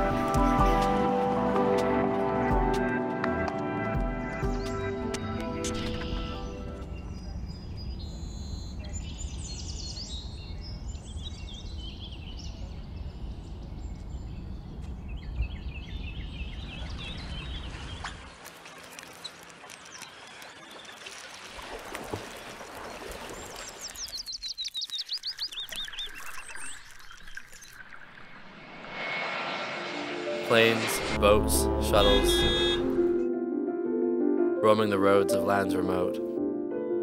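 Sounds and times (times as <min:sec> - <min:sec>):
birds chirping: 0:04.4 - 0:21.6, 0:22.2 - 0:28.4, 0:31.9 - 0:33.1
low rumble: 0:28.0 - 0:33.2.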